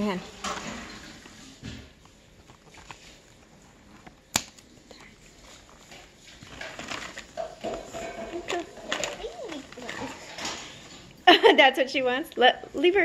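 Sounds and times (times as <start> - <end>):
plush toy and tag rustling: 2.0 - 11.0.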